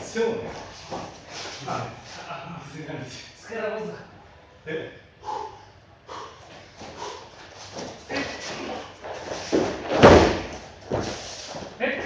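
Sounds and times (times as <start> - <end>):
bare feet shuffling on a mat: 0.0 - 2.3, 6.4 - 12.0
body thrown onto a mat: 7.8 - 11.2.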